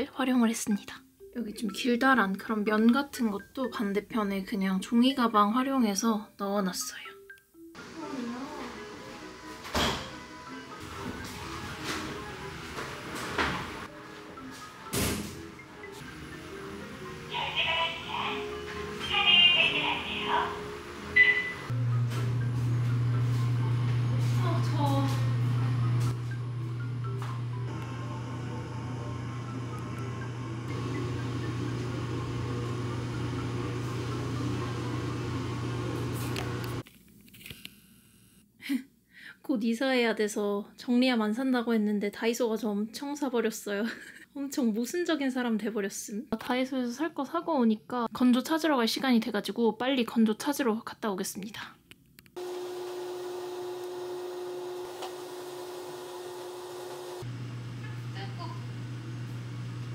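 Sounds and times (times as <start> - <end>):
low machine hum: 19.6 - 36.8, 52.4 - 59.9.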